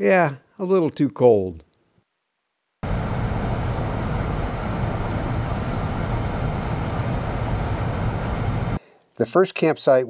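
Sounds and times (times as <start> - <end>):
constant hiss: 0.0 - 10.0
car cabin road and engine rumble: 2.8 - 8.8.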